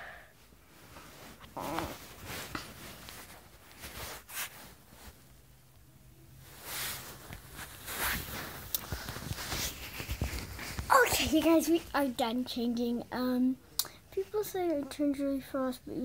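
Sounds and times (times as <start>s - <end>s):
clothes rustling: 0.4s - 13.5s
fabric swishes: 0.7s - 5.4s, 6.4s - 11.8s.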